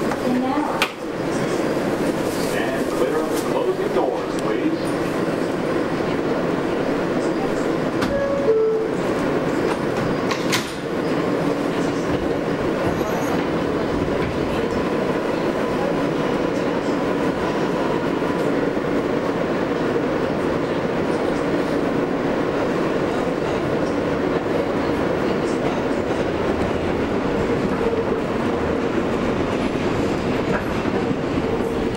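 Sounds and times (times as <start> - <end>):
train wheels rumbling on rail: 0.0 - 31.9
train doors shutting: 7.2 - 15.0.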